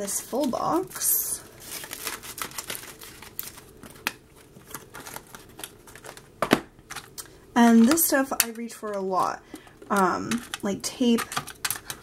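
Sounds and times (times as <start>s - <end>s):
small items clicking and rustling: 0.0s - 12.0s.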